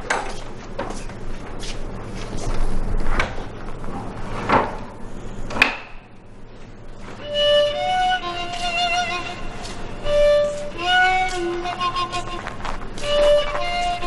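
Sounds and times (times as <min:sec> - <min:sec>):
slow footsteps: 0:00.0 - 0:03.9, 0:06.5 - 0:14.0
violin playing long notes: 0:07.2 - 0:14.0.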